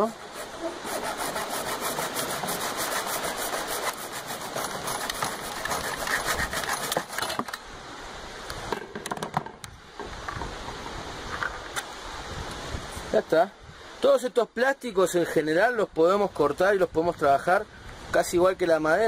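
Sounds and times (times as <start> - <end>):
hacksaw cutting plastic pipe: 0.2 - 7.5
scattered clicks and knocks: 8.7 - 10.8.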